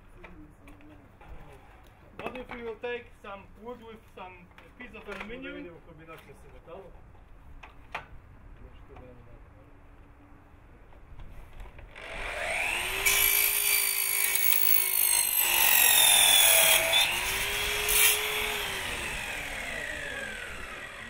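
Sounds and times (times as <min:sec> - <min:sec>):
mitre saw motor whine: 0:11.9 - 0:21.0
saw blade cutting steel: 0:12.0 - 0:21.0.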